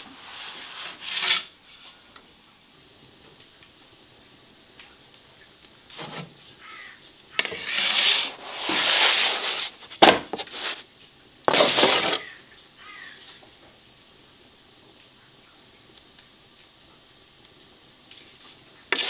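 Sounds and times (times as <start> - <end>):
rough scraping strokes: 0.0 - 2.0, 7.5 - 10.8, 11.5 - 12.3.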